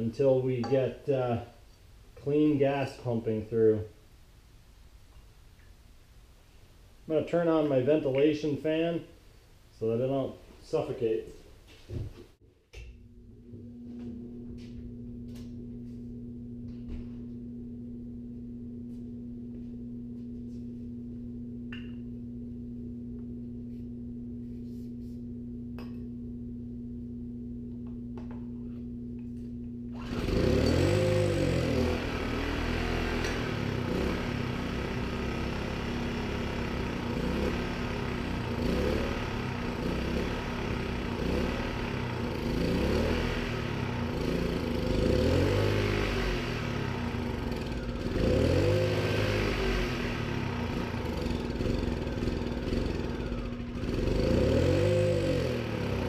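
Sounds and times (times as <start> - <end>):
ventilation fan humming: 0.0 - 45.2, 45.8 - 56.0
generator engine running unevenly: 30.0 - 45.2, 45.8 - 56.0.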